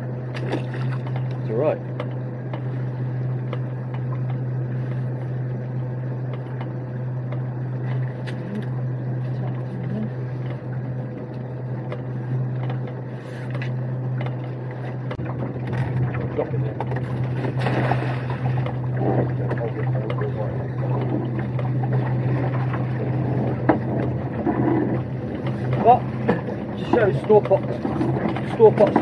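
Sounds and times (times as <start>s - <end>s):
boat engine idling: 0.0s - 29.0s.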